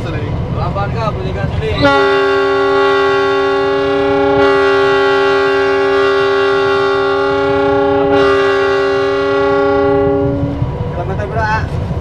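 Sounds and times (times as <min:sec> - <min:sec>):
locomotive air horn blast: 0:01.8 - 0:10.6.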